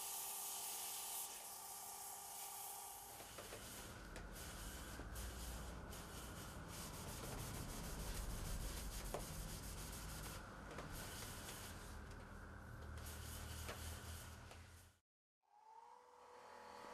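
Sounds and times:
cloth pad rubbing spinning wood: 2.4s - 12.0s.

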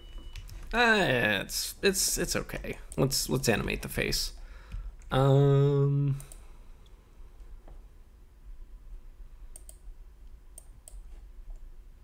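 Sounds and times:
computer mouse clicks: 9.5s - 11.7s.

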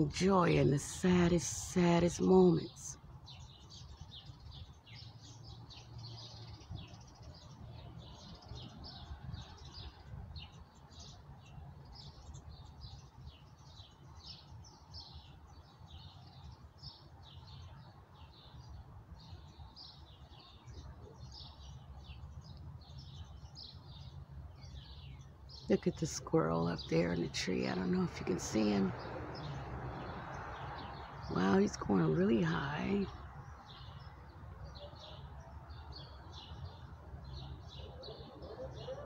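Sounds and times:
songbirds chirping: 0.0s - 39.0s.

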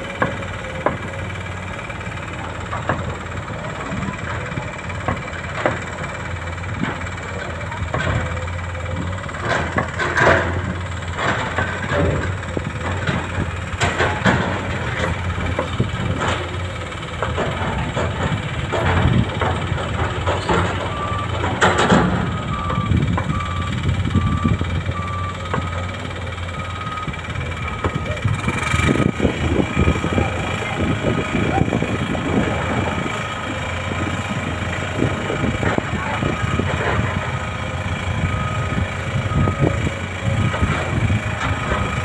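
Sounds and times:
diesel engine drone: 0.0s - 42.0s
clanks and knocks: 0.1s - 28.1s
reversing alarm beeping: 20.6s - 30.2s, 36.2s - 42.0s.

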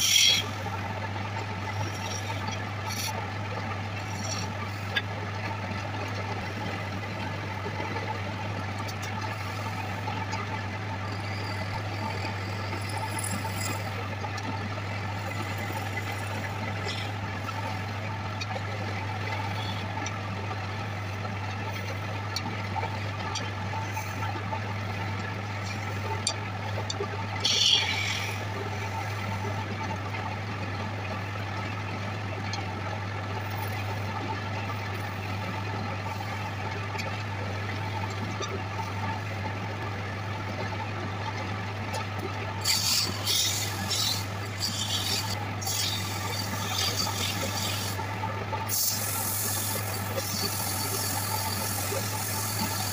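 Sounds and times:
turning tool scraping wood: 0.0s - 0.6s, 11.1s - 14.0s, 42.6s - 48.0s
wood lathe humming: 0.0s - 4.9s, 8.4s - 17.9s, 27.4s - 29.2s, 42.6s - 48.0s, 48.7s - 52.9s.

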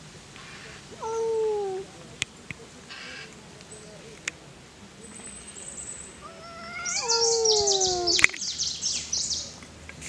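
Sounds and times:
cat yowling: 1.0s - 1.9s, 6.2s - 8.2s
cat hissing: 6.2s - 8.3s.

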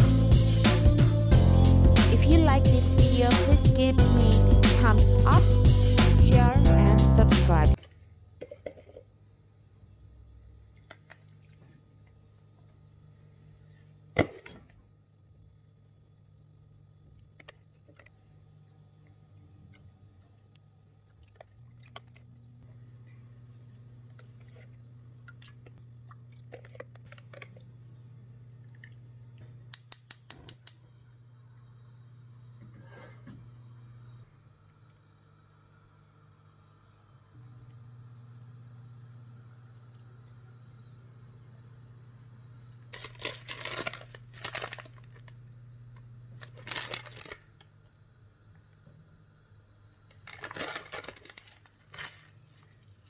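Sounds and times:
low hum: 18.0s - 29.8s, 30.7s - 50.1s
gas hob igniter clicking: 29.7s - 30.9s
plastic bag crinkling: 42.9s - 45.4s, 46.3s - 47.7s, 50.1s - 53.0s.

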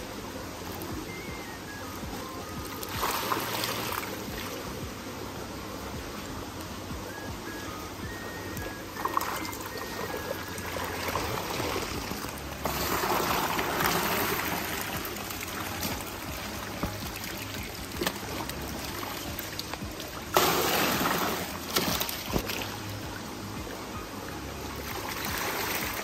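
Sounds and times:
steady low hum: 0.0s - 26.0s
running and splashing water: 9.0s - 23.2s, 24.7s - 26.0s.

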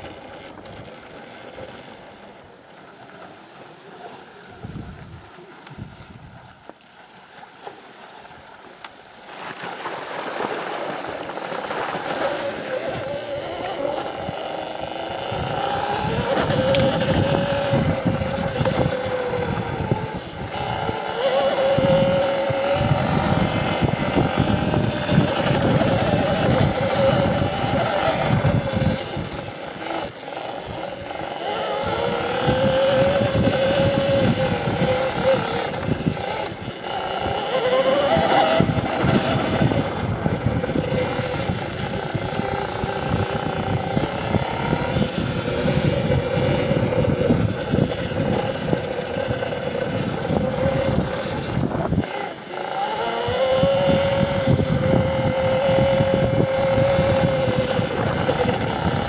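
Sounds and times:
electric motor whine: 0.0s - 6.1s, 10.3s - 59.0s
wind: 0.0s - 59.0s.

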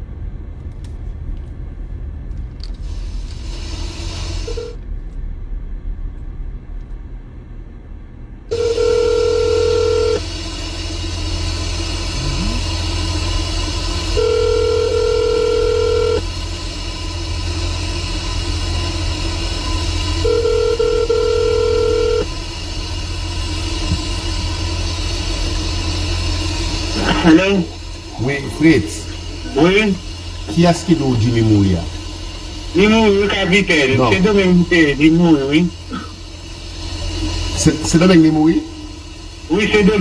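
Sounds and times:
telephone ringback tone: 8.5s - 10.2s, 14.2s - 16.2s, 20.2s - 22.3s.

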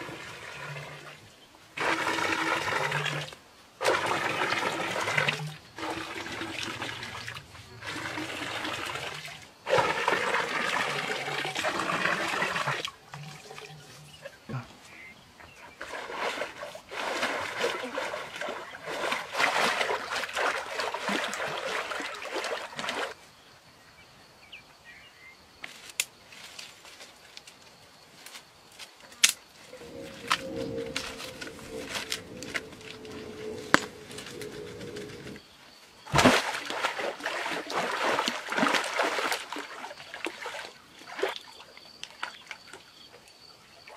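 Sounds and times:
water splashing and sloshing: 0.0s - 23.2s, 29.6s - 43.9s
water splashing from swimming: 15.8s - 23.2s, 36.1s - 42.8s.

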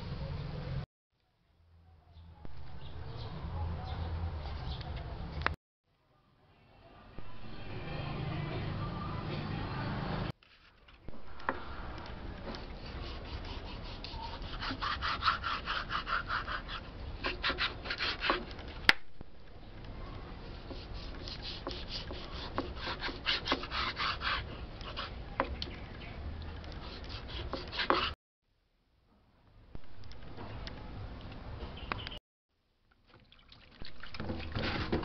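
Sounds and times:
knife sawing through raw meat: 12.8s - 18.4s, 20.7s - 25.1s, 26.8s - 28.2s.

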